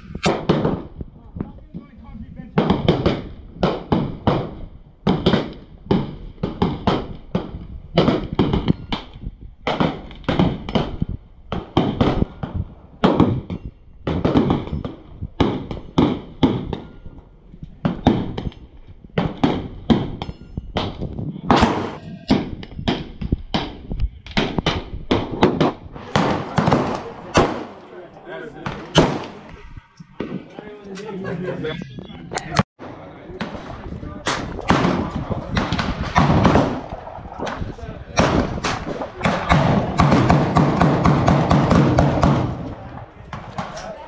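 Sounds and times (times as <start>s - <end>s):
gunshots with echo: 20.8s - 23.8s, 24.4s - 27.9s, 28.6s - 29.5s, 32.8s - 43.8s.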